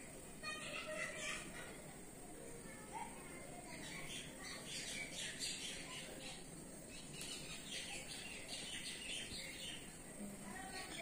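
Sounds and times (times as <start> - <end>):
faint background noise: 0.0 - 11.0
birds chirping: 3.0 - 11.0.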